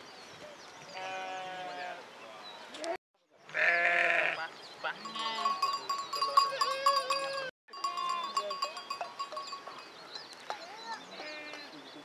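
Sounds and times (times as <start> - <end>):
sheep bleating: 1.0 - 2.0, 3.5 - 4.4, 5.0 - 5.6.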